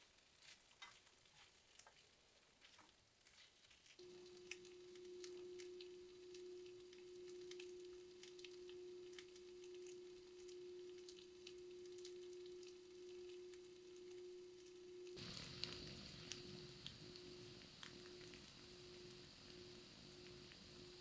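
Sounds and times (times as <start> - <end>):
faint crackling: 0.0 - 21.0
steady low hum: 4.0 - 21.0
loud hiss: 15.2 - 21.0.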